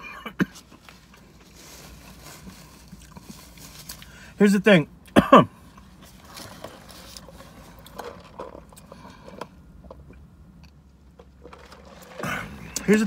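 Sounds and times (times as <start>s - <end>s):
person chewing food: 2.8s - 4.2s.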